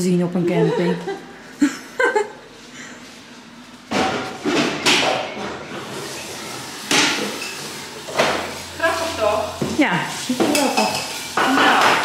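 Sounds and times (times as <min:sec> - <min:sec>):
dishes knocking and clattering: 0:03.9 - 0:05.9, 0:06.8 - 0:08.5, 0:09.6 - 0:12.0.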